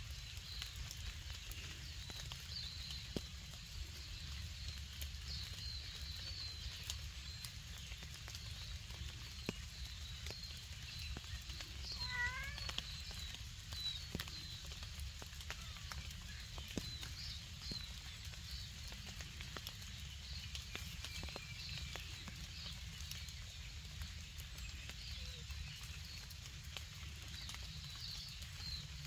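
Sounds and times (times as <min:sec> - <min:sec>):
small birds chirping: 0:00.0 - 0:29.0
cat meowing: 0:12.0 - 0:12.7.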